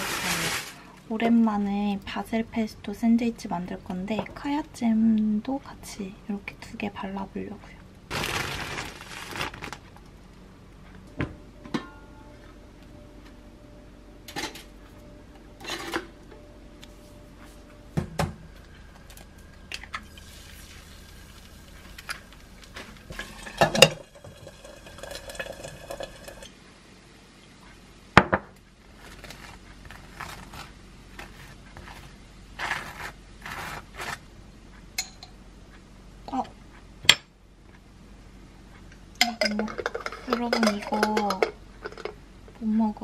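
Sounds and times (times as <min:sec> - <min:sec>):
egg sizzling in a frying pan: 0:20.0 - 0:26.6
pans and utensils clicking: 0:23.1 - 0:26.5, 0:39.2 - 0:42.2
knife scraping toast: 0:29.0 - 0:34.2.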